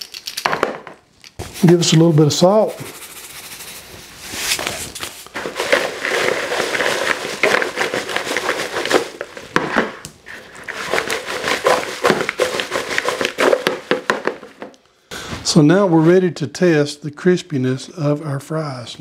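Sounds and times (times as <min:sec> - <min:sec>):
paper towel crinkling: 0:01.4 - 0:09.6, 0:10.2 - 0:14.4
fries rattling in plastic bowl: 0:05.3 - 0:14.7.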